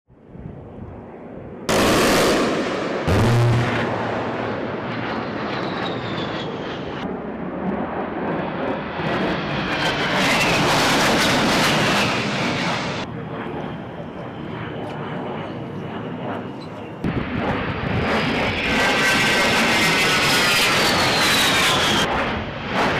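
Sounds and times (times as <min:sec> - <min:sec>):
jets flying past: 0:00.6 - 0:22.9
loud low buzz: 0:01.7 - 0:05.0.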